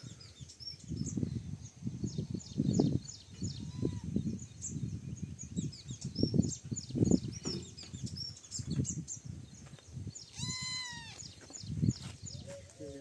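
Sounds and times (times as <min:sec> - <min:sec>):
small birds chirping: 0:00.0 - 0:13.0
high pitched animal call: 0:03.6 - 0:04.1, 0:10.3 - 0:11.2.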